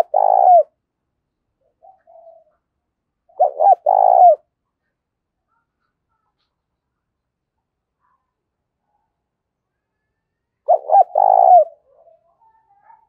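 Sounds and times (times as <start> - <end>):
dove cooing: 0.0 - 0.8, 1.6 - 2.6, 3.3 - 4.5, 10.7 - 13.0.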